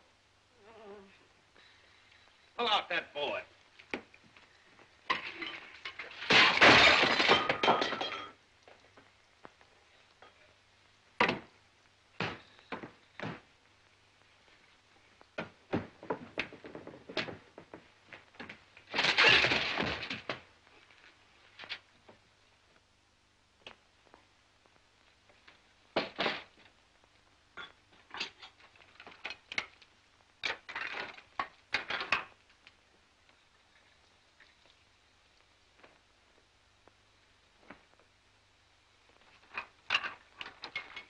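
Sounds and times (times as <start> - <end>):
dishes crashing and breaking: 5.1 - 8.4, 18.9 - 20.4.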